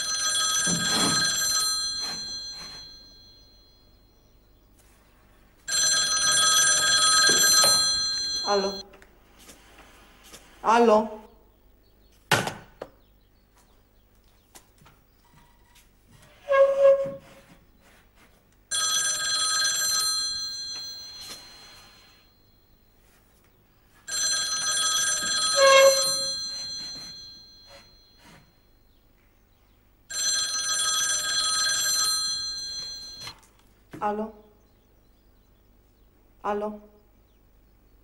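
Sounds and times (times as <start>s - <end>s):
telephone bell ringing: 0.0s - 4.3s, 5.6s - 8.8s, 18.7s - 22.7s, 24.0s - 28.7s, 30.1s - 33.5s.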